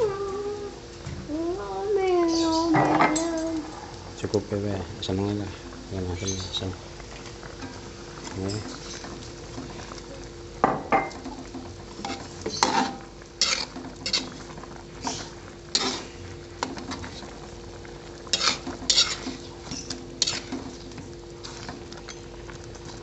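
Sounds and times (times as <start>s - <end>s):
faint steady hum: 0.0s - 23.0s
metal spatula scraping a wok: 12.0s - 17.2s, 18.3s - 20.7s.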